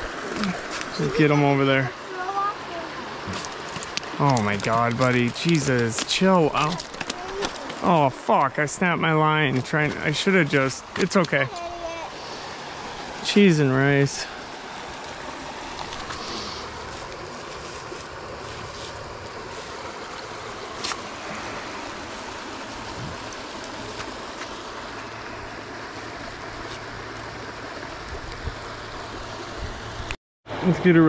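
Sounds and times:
water rushing over rocks: 0.0 - 31.0.

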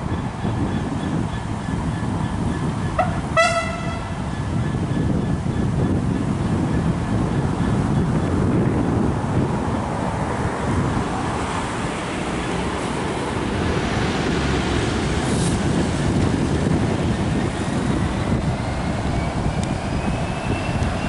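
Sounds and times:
diesel locomotive rumble: 0.0 - 21.0
wind noise on microphone: 0.0 - 21.0.

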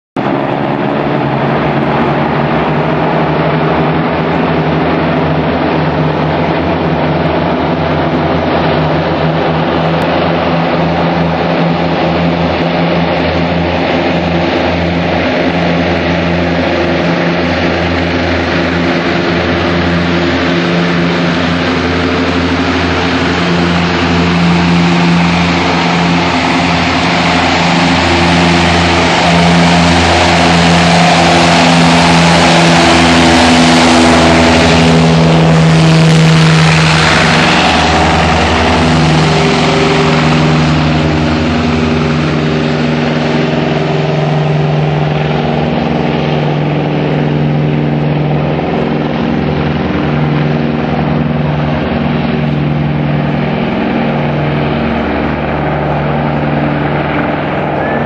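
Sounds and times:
propeller plane droning: 0.2 - 58.0.

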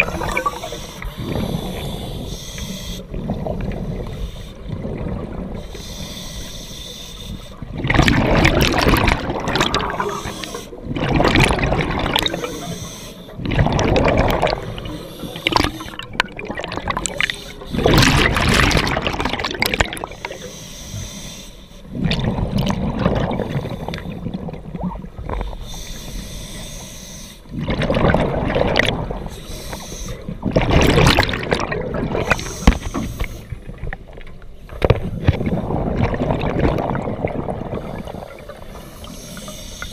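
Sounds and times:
bubbles gurgling: 0.0 - 2.0, 3.1 - 5.6, 7.6 - 20.4, 21.9 - 25.4, 27.5 - 29.4, 30.3 - 32.8, 35.0 - 38.7
regulator hiss: 12.4 - 13.4, 25.6 - 27.4, 38.0 - 39.9.

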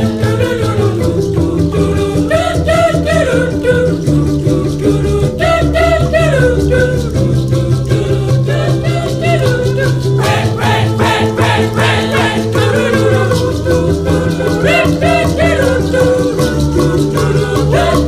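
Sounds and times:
person singing: 0.0 - 18.0
steady bass line: 0.0 - 18.0.

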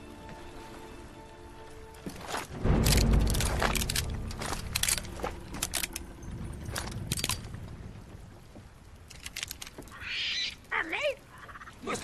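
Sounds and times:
pistols cocking metallic clicks: 2.8 - 7.5, 9.0 - 9.8.

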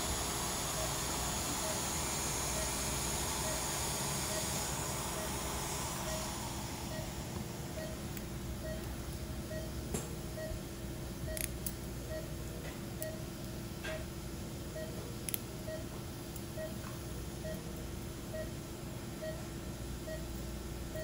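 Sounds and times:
equipment hum: 0.0 - 21.0
patient monitor beeping: 0.6 - 7.1, 7.7 - 10.6, 11.2 - 12.4, 13.0 - 13.3, 14.7 - 16.8, 17.4 - 17.7, 18.3 - 18.6, 19.2 - 20.3.

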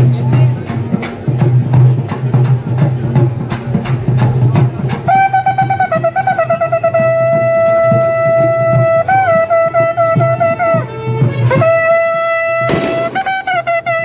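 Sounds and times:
soft drumbeat: 0.0 - 14.0
wind instrument melody: 4.5 - 14.0
sharp crack: 12.7 - 13.4.

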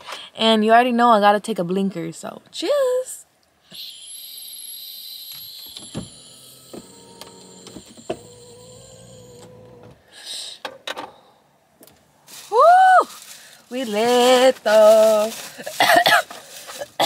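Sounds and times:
vape pen whistle and hiss: 3.7 - 6.2
person exhaling: 10.0 - 10.6.

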